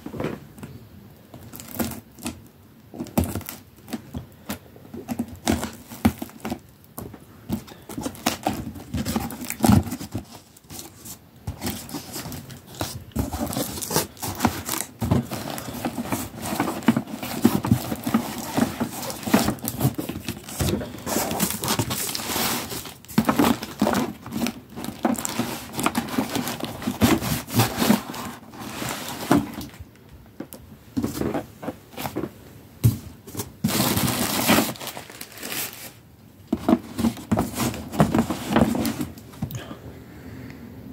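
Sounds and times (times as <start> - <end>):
cardboard and plastic crinkling: 0.0 - 39.5.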